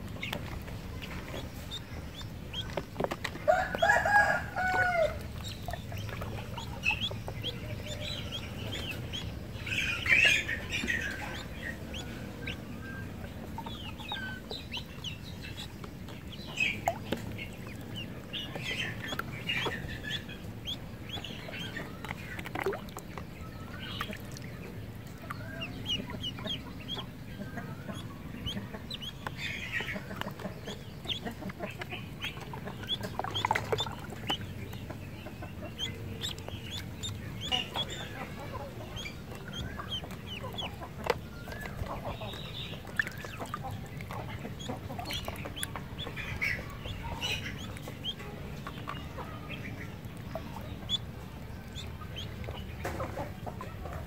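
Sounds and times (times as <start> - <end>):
ducklings peeping: 0.0 - 54.0.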